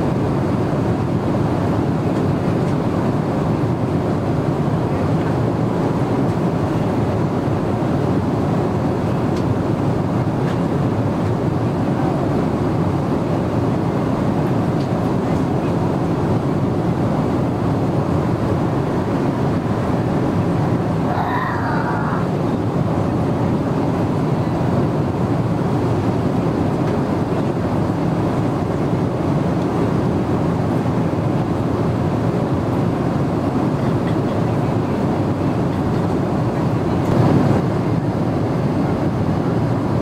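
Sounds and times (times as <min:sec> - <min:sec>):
airliner engine noise: 0:00.0 - 0:40.0
airflow rush: 0:06.9 - 0:33.4.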